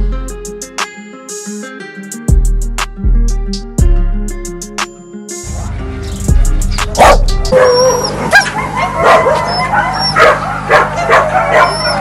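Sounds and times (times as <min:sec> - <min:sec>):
background music: 0:00.0 - 0:08.3
dogs yelping: 0:06.7 - 0:12.0
dogs barking: 0:06.8 - 0:12.0.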